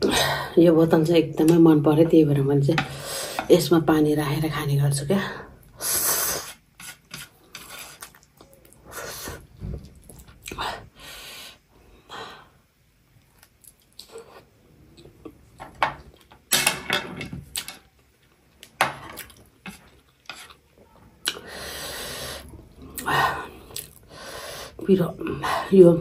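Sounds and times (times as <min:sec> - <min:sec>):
chewing food: 0:13.2 - 0:15.4.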